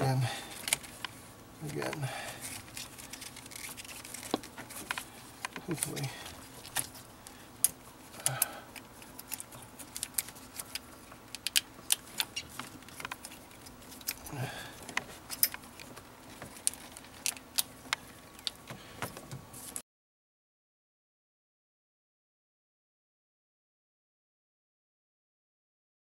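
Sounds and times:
plastic connectors clicking: 7.6s - 14.3s.

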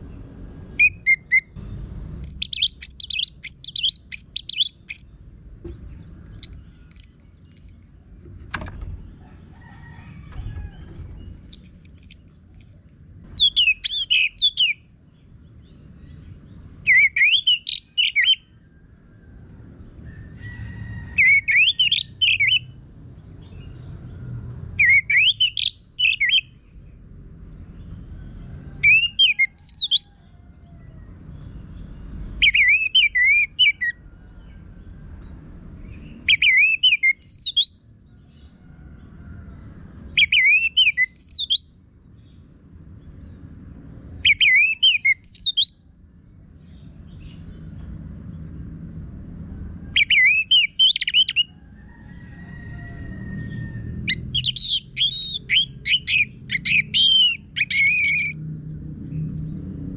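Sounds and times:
thrush singing whistled notes: 0.8s - 1.6s, 2.2s - 5.2s, 6.3s - 8.0s, 11.2s - 14.9s, 16.8s - 18.6s, 21.2s - 22.8s, 24.8s - 26.6s, 32.4s - 34.0s, 36.2s - 37.8s, 40.2s - 41.8s, 44.2s - 45.8s, 50.0s - 51.5s, 54.1s - 58.4s.

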